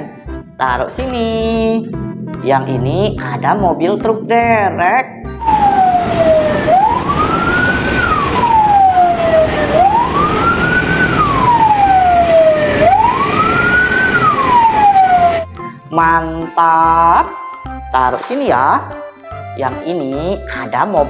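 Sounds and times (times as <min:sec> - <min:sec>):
noisy rumble: 0:00.3 - 0:16.2
vehicle siren wailing: 0:05.3 - 0:15.8.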